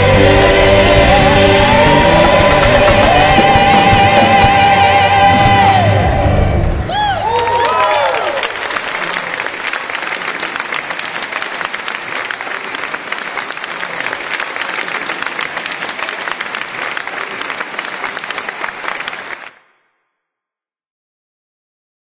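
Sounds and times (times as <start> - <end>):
audience applauding: 0.0 - 5.9, 6.9 - 19.6
gospel singing: 0.0 - 7.1.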